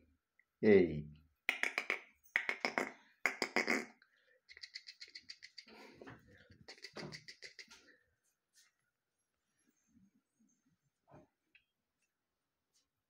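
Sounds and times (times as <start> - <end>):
person making mouth clicks: 1.5 - 5.9, 6.6 - 7.8.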